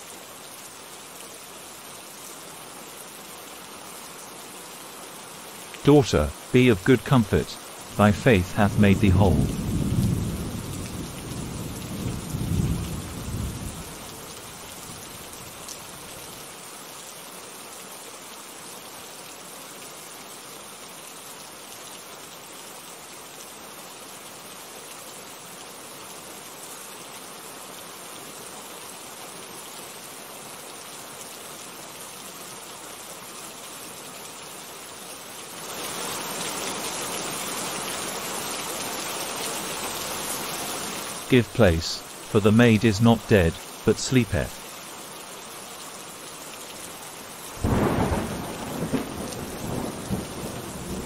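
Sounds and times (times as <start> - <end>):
steady rain falling: 0.0 - 51.0
thunder rumble: 47.6 - 51.0.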